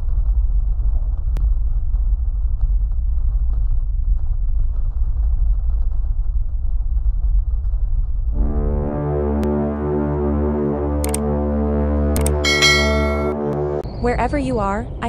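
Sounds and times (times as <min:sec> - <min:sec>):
sharp click: 0:12.2 - 0:13.3.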